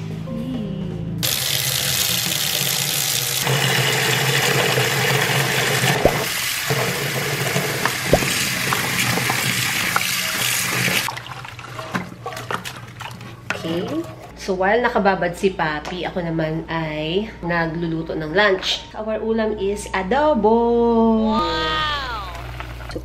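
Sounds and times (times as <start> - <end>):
tap water pouring into basin: 1.2 - 13.2.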